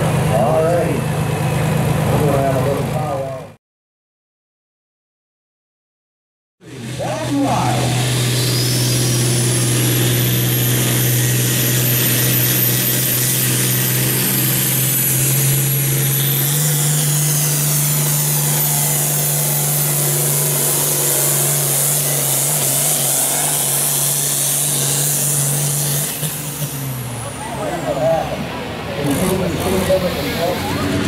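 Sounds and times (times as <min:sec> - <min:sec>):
diesel tractor engine droning: 0:00.0 - 0:03.6, 0:06.6 - 0:31.0
high turbo whistle: 0:08.2 - 0:27.0.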